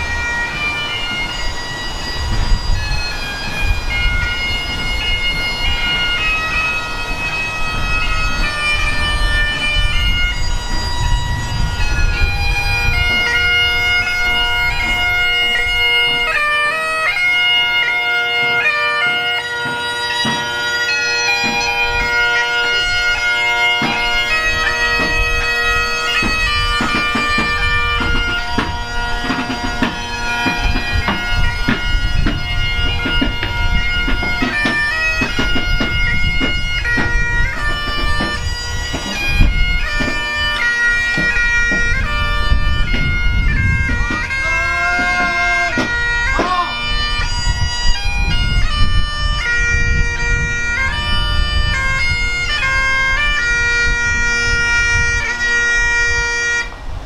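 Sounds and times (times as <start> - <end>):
bagpipes playing slow tune: 0.0 - 57.0.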